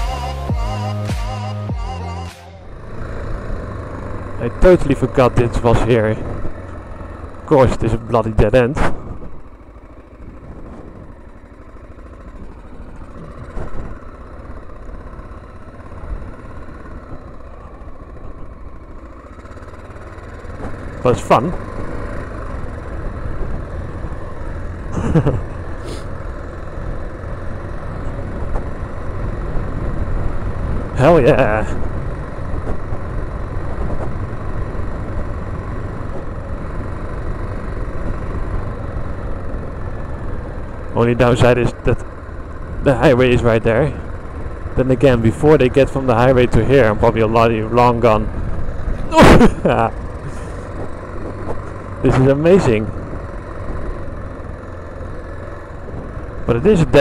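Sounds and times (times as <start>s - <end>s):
dirt bike engine running: 0.0s - 57.0s.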